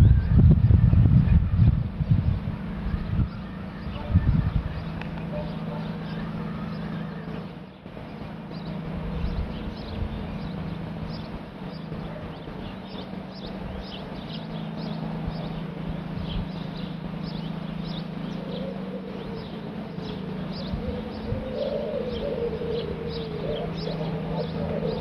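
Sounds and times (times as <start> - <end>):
wind on microphone: 0.0 - 5.4, 19.0 - 25.0
low hum: 0.0 - 25.0
small birds chirping: 0.0 - 25.0.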